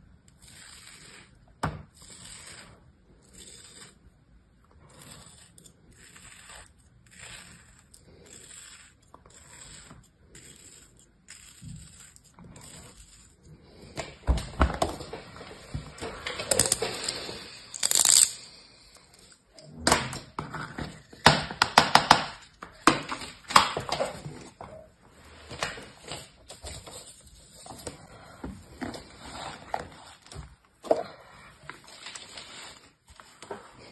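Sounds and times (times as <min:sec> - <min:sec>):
knife scraping kinetic sand: 0:00.3 - 0:04.2, 0:04.8 - 0:14.1.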